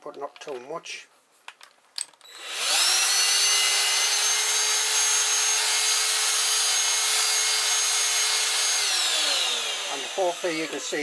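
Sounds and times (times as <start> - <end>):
vacuum cleaner whine: 2.3 - 11.0.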